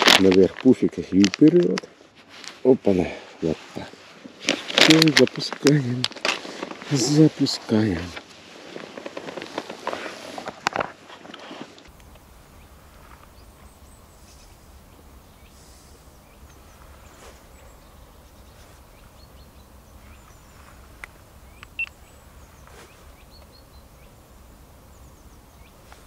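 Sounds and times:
steady low rumble: 11.9s - 26.0s
faint bird chirps: 12.0s - 26.0s.

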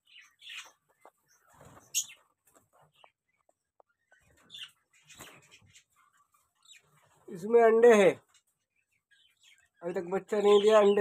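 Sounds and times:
budgerigars chirping: 0.0s - 2.3s, 4.1s - 7.0s, 8.7s - 11.0s.

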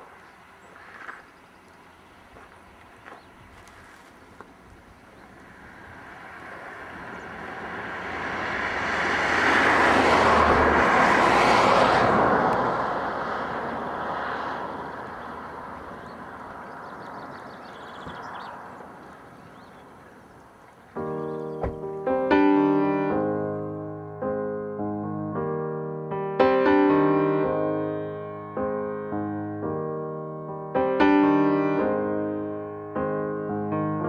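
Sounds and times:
vehicle passing by: 0.1s - 20.3s.

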